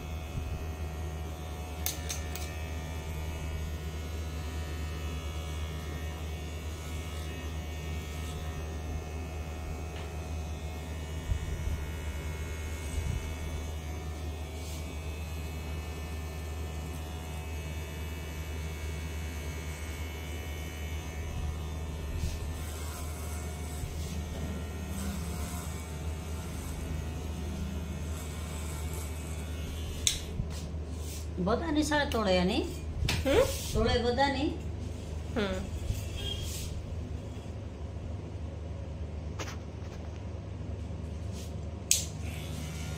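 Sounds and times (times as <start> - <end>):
electric hair clipper buzzing: 0.0 - 30.7, 41.8 - 42.9.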